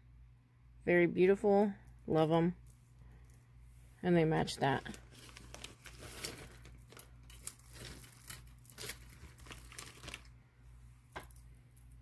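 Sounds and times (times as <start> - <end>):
crinkly packaging rustling: 4.5 - 10.4.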